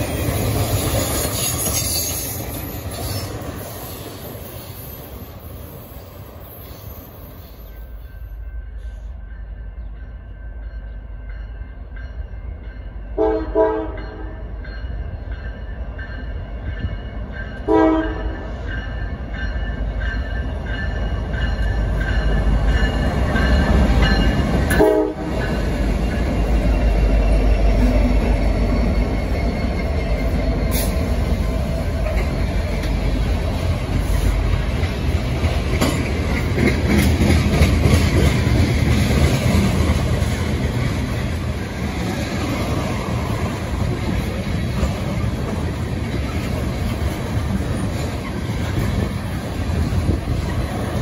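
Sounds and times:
diesel locomotive engine rumble: 0:00.0 - 0:51.0
train wheels on rail: 0:00.0 - 0:51.0
train horn: 0:13.1 - 0:14.4, 0:17.6 - 0:18.5, 0:24.7 - 0:25.5.

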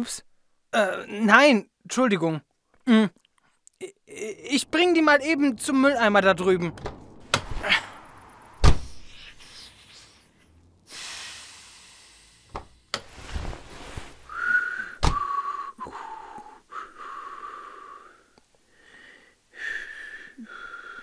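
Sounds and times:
loud thump: 0:06.6 - 0:09.1
hiss: 0:10.9 - 0:12.6
person whistling: 0:14.3 - 0:16.3.

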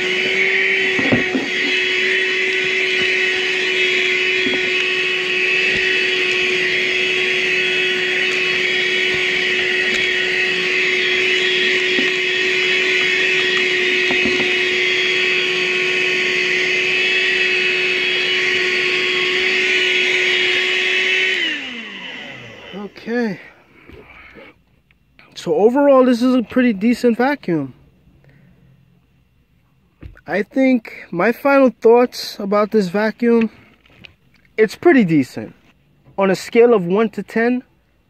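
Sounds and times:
car vacuum running: 0:00.0 - 0:24.2.

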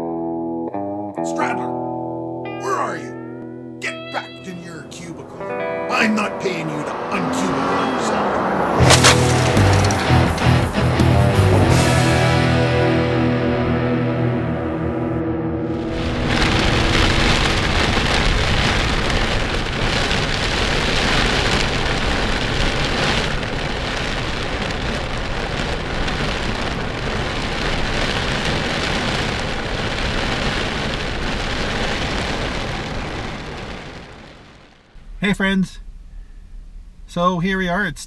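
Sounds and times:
heavy rain: 0:04.2 - 0:14.8, 0:15.7 - 0:36.7
strong wind: 0:15.6 - 0:35.2.

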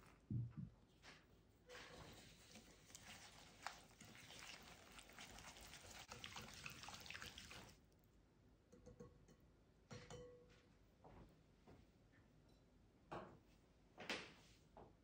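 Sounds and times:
whisk scraping a glass bowl: 0:01.7 - 0:07.7.

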